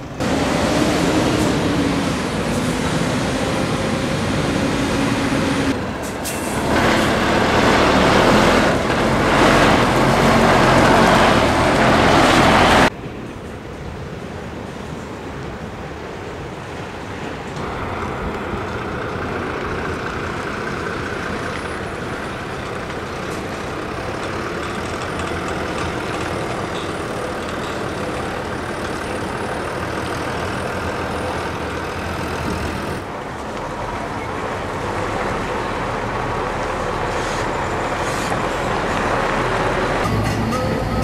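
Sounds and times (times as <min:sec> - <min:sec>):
heavy lorries driving past: 0:00.0 - 0:41.0
traffic noise: 0:00.0 - 0:41.0.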